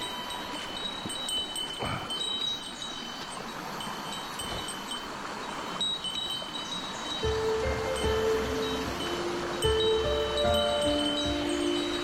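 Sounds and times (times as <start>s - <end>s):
stream running over stones: 0.0s - 12.0s
high bell-like tones: 5.7s - 12.0s.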